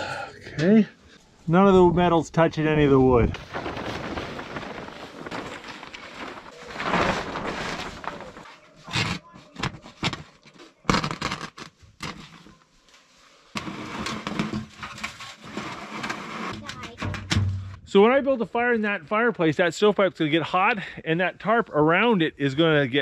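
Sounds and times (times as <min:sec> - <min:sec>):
plastic tarp rustling: 0:02.9 - 0:16.4.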